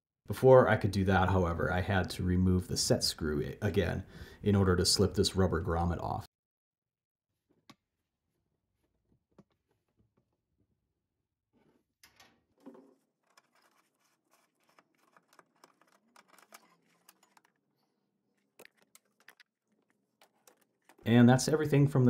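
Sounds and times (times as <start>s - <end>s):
faint scratches and small clicks: 12.8s - 21.1s.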